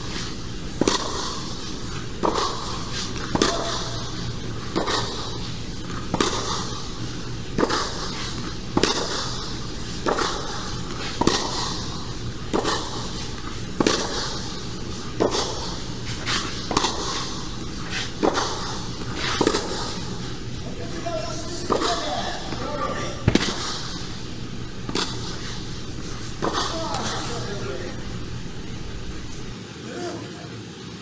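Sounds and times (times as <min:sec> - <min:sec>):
tennis ball struck with racquets: 0:00.1 - 0:29.5.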